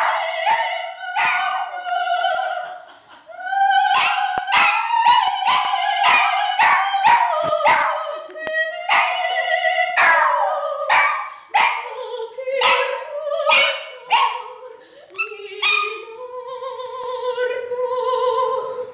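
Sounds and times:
dog yelping barks: 0:00.0 - 0:01.6, 0:03.9 - 0:08.0, 0:08.9 - 0:09.2, 0:10.0 - 0:11.8, 0:12.6 - 0:12.9, 0:13.5 - 0:14.4, 0:15.6 - 0:16.0
woman operatic singing: 0:00.0 - 0:18.9.

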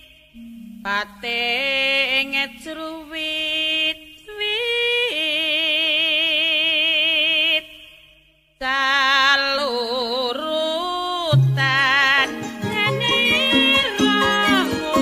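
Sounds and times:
solo voice singing with vibrato: 0:00.0 - 0:08.0, 0:08.6 - 0:15.0.

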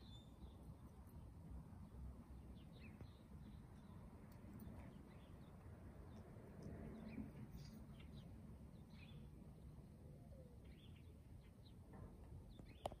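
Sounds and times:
bird chirps: 0:00.0 - 0:01.2, 0:06.9 - 0:11.9.

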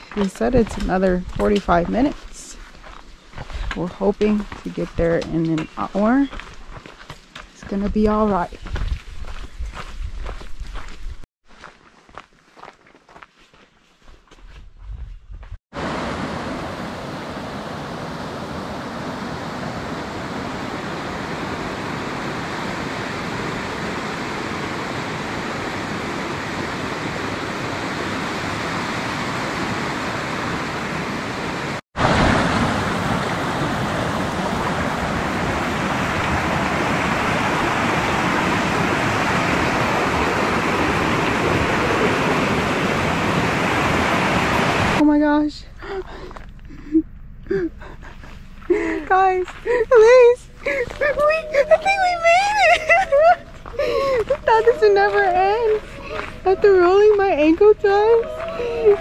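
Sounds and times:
stream rushing over rocks: 0:15.8 - 0:45.0.

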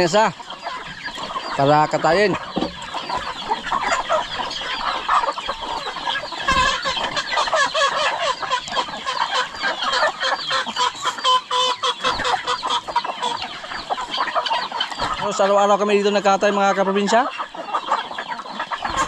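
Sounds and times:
chickens clucking and squawking: 0:00.0 - 0:19.0.

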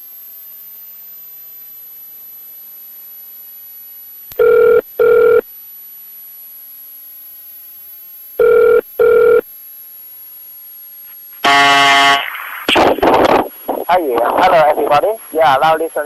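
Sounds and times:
phone line hiss: 0:00.0 - 0:05.6, 0:08.3 - 0:09.6, 0:10.3 - 0:15.7
telephone ringback tone: 0:04.4 - 0:05.5, 0:08.4 - 0:09.5.

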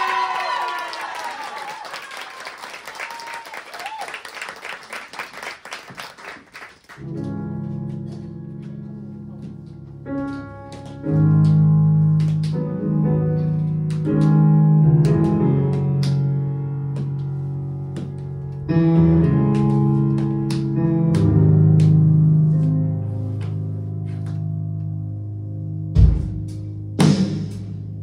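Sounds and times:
audience applause: 0:00.0 - 0:07.0
music with held notes and hits: 0:25.8 - 0:28.0.

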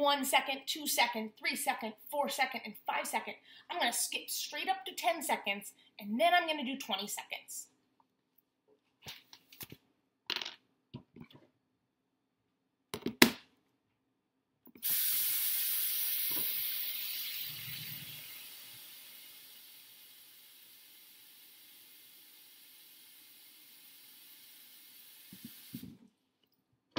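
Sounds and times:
faucet water pouring into bowl: 0:14.8 - 0:25.8.

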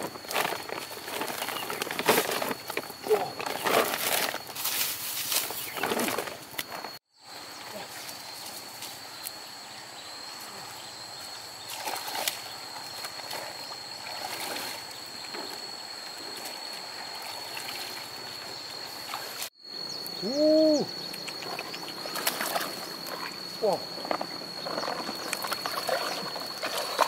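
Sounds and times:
water sloshing and splashing: 0:11.6 - 0:19.5, 0:21.4 - 0:27.0.

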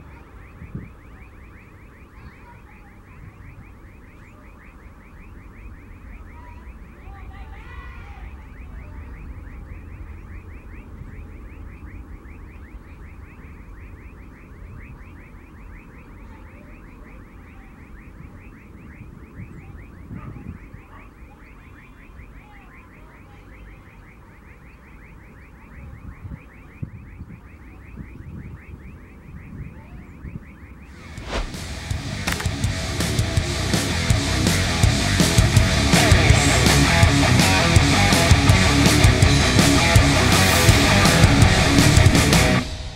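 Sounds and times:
high repeating chirp: 0:00.0 - 0:07.3, 0:08.2 - 0:42.9
jet engines rumbling: 0:30.9 - 0:42.9
loud music: 0:31.5 - 0:42.9.

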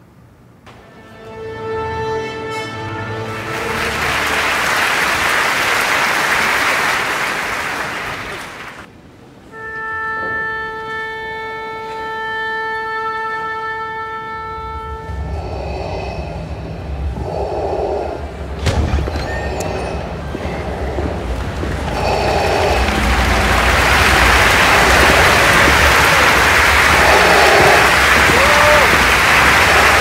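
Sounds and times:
orchestral chord: 0:00.7 - 0:05.2
audience applause: 0:03.2 - 0:08.9, 0:20.4 - 0:30.0
low rumble: 0:14.8 - 0:30.0.

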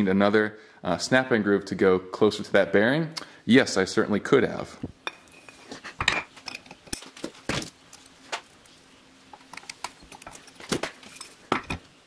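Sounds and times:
small metal parts clinking: 0:09.3 - 0:11.9.

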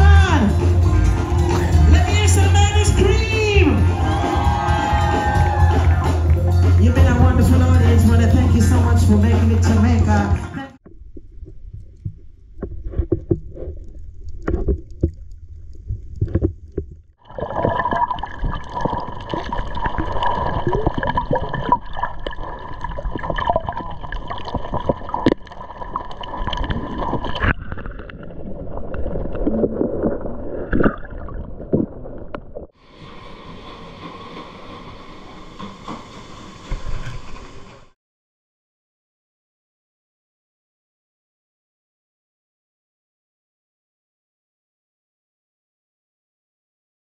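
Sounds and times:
underwater gurgling and sloshing: 0:10.8 - 0:37.9.

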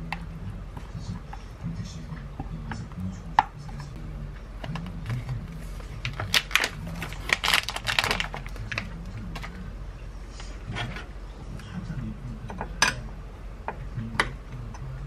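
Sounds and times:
steady low hum: 0:00.0 - 0:15.0
plastic pouch torn and crinkled: 0:06.1 - 0:08.9.

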